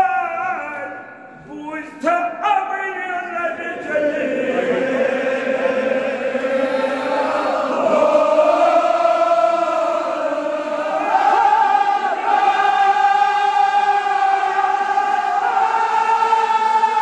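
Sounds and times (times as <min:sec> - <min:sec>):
men chanting together: 0:03.5 - 0:17.0.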